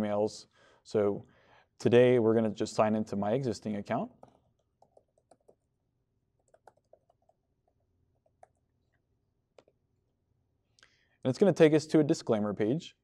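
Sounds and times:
soft laptop keyboard clicks: 4.2s - 5.7s, 6.4s - 8.7s.

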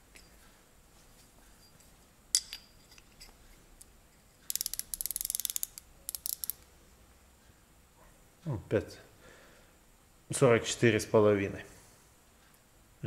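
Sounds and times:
micrometer ratchet clicking: 4.4s - 6.7s.

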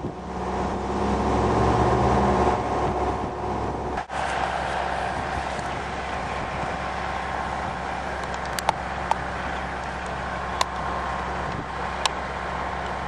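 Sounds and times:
vehicle engine running: 0.0s - 13.0s
sharp clicks: 8.2s - 9.2s.

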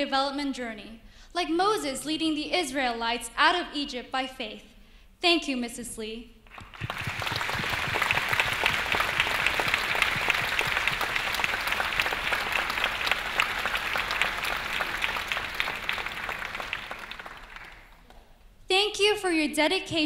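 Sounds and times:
crowd applauding: 6.5s - 18.3s.

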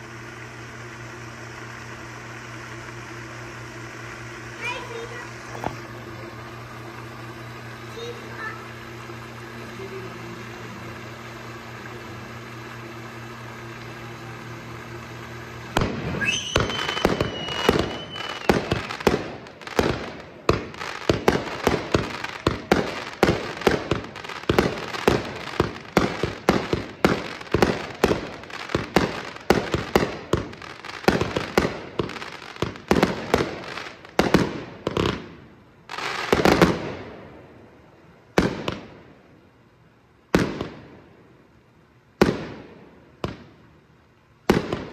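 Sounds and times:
firework whistle: 0.0s - 35.3s
firework bangs: 0.0s - 37.7s, 38.3s - 39.2s, 40.3s - 41.1s, 42.2s - 43.7s, 44.4s - 44.9s
rushing firework burst: 0.0s - 39.2s
steady low hum: 0.0s - 44.9s.

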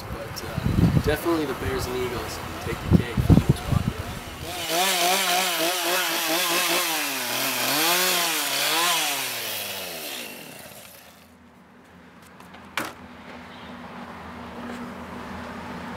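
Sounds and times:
chainsaw cutting wood: 4.3s - 11.3s.

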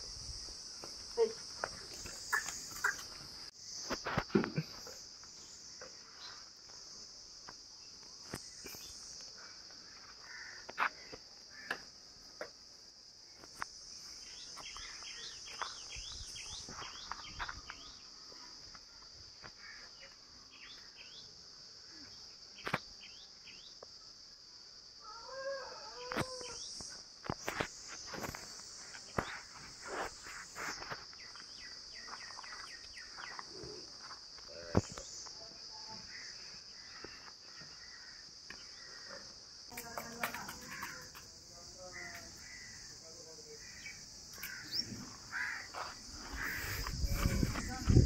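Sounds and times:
high-pitched insect drone: 25.0s - 48.0s.

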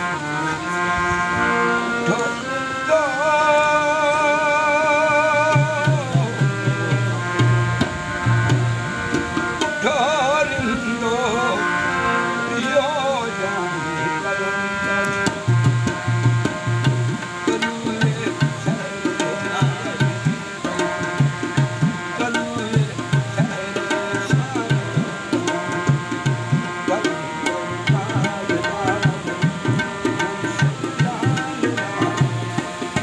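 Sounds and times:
music with drum rhythm: 5.5s - 10.0s, 15.0s - 33.0s.

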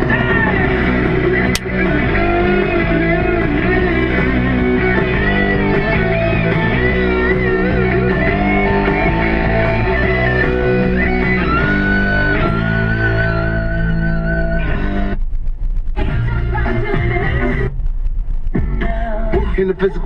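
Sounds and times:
guitar music with bending melody: 0.0s - 15.2s.

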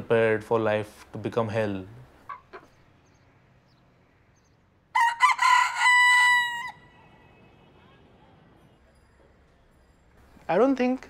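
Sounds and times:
rooster crowing: 4.9s - 7.3s.

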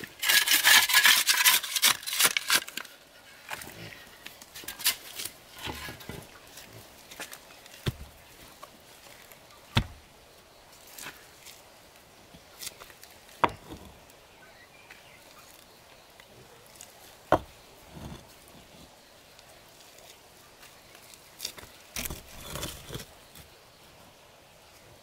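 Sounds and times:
concrete block scraping and knocking: 3.4s - 8.2s, 9.8s - 10.0s, 12.4s - 14.0s, 17.3s - 18.9s, 21.6s - 23.5s
concrete blocks clacking: 13.4s - 14.0s, 17.3s - 18.3s.

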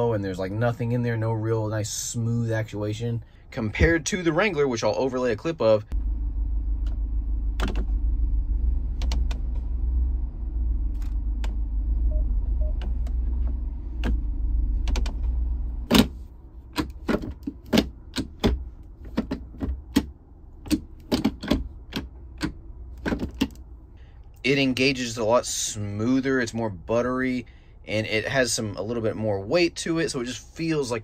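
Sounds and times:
engine idling hum: 0.0s - 31.0s
gear shifter clicks and clunks: 6.8s - 8.0s, 8.9s - 9.8s, 12.6s - 23.7s.

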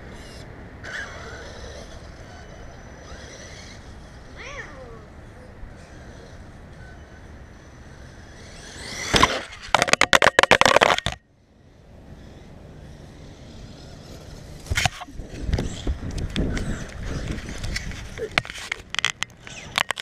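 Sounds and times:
electric motor whining: 0.0s - 9.8s
toy truck bumping over lawn: 0.2s - 4.2s, 7.9s - 11.2s, 12.3s - 20.0s.

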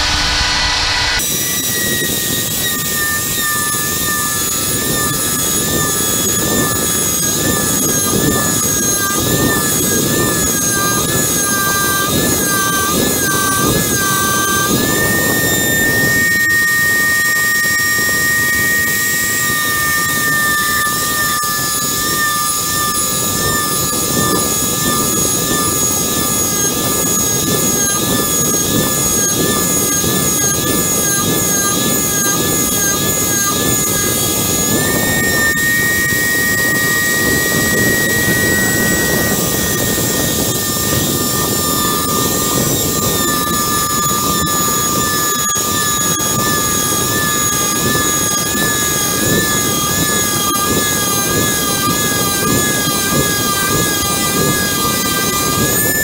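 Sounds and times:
electric router whining: 0.0s - 56.0s
router cutting metal: 0.0s - 56.0s.

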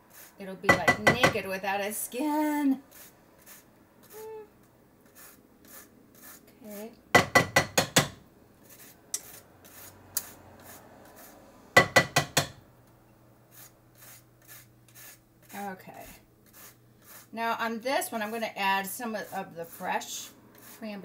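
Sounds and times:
zester grating orange peel: 2.9s - 4.4s, 5.0s - 7.0s, 8.6s - 11.4s, 13.5s - 15.8s, 16.4s - 21.0s.

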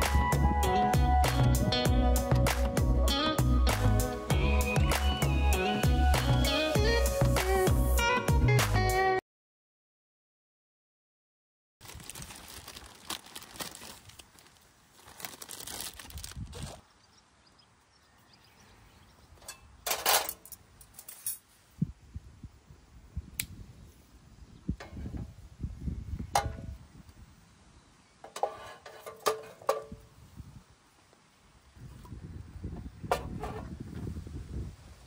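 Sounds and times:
rustling and crinkling of gear: 11.8s - 16.8s.

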